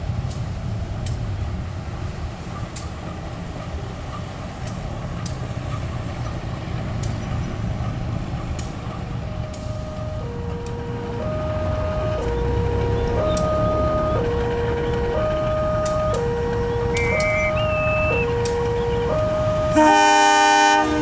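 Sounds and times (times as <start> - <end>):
diesel locomotive engine rumble: 0.0 - 21.0
sharp clicks: 4.6 - 10.8, 12.1 - 14.1, 14.8 - 19.3
steady musical tones: 6.4 - 21.0.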